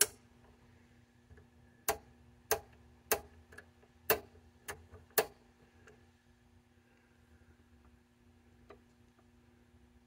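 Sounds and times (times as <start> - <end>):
faint steady hum: 0.0 - 10.0
rotary switch clicks: 1.8 - 5.4.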